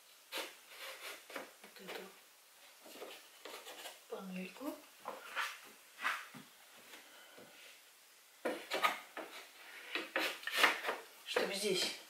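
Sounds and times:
wood scraping and knocking on wood: 0.3s - 2.1s, 2.8s - 4.0s, 8.4s - 12.0s.

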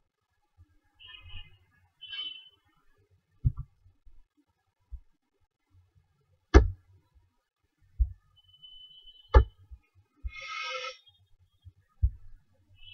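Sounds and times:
soft low thumps: 3.4s - 3.8s, 6.6s - 6.8s, 8.0s - 8.2s, 12.0s - 12.4s.

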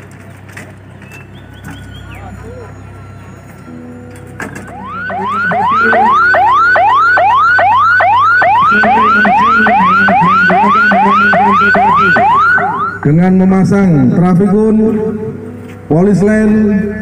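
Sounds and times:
ambulance siren yelping: 1.4s - 13.4s.

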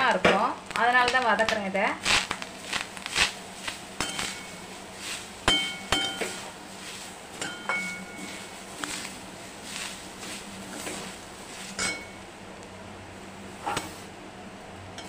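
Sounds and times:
spatula scraping rustle: 2.0s - 12.2s.

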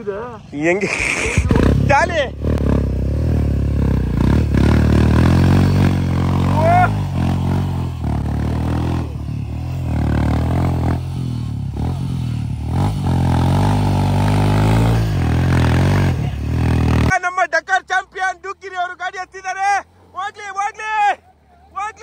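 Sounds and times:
motorcycle engine revving hard: 0.8s - 17.1s.

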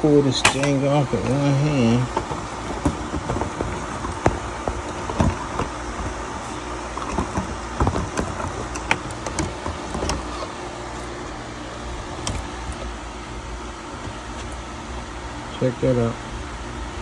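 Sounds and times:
steady low machine hum: 0.0s - 17.0s
plastic and metal clicks and knocks: 2.1s - 6.2s, 6.9s - 10.3s.

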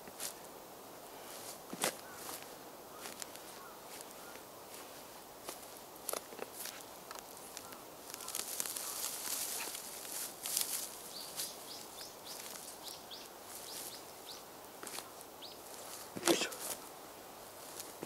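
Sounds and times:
small bird chirping: 7.5s - 9.8s, 11.0s - 15.9s.

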